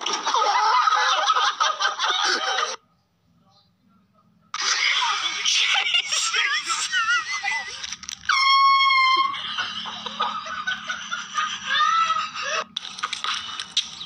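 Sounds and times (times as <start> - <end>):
noisy commotion: 4.5 - 14.0
shrill cries: 4.6 - 12.7.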